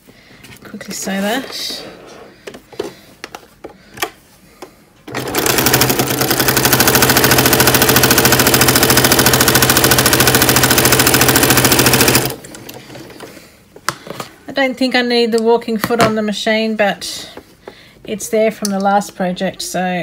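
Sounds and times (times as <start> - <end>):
sewing machine stitching: 5.1 - 12.8.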